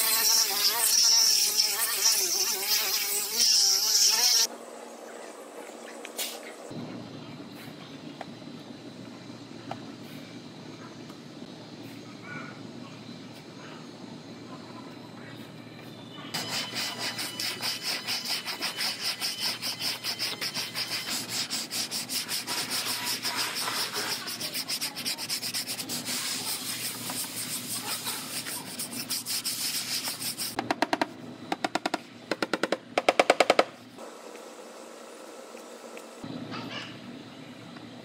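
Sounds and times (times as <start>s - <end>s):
sanding block scratching strokes: 16.4s - 30.6s.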